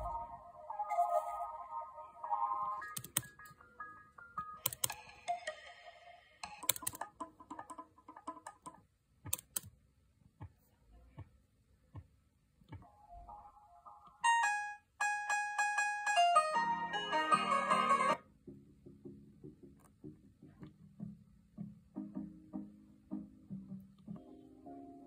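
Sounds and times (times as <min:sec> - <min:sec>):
song snippets through computer speakers: 0:00.0 - 0:08.7, 0:12.8 - 0:25.0
keyboard and mouse clicks: 0:02.9 - 0:03.6, 0:04.4 - 0:05.1, 0:06.4 - 0:09.8.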